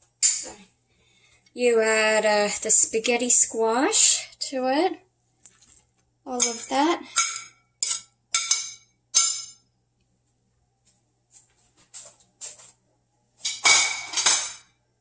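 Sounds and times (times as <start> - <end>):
spatula clinking: 6.4 - 9.6.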